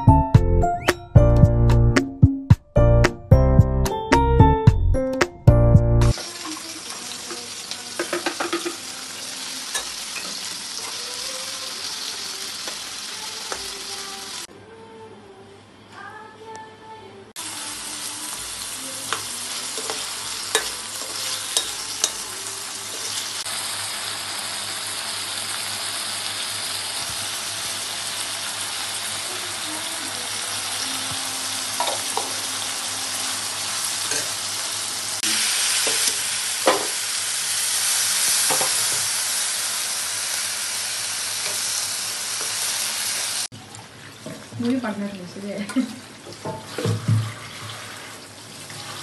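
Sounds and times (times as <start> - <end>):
onions sizzling in hot oil: 6.1 - 14.5, 17.4 - 43.5
metal utensil scraping a pan: 19.2 - 22.3.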